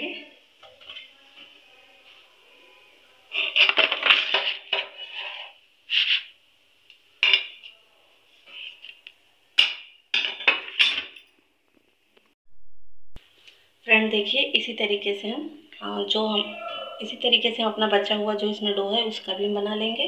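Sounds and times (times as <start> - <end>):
metal spoon scraping a wok: 3.3 - 6.3.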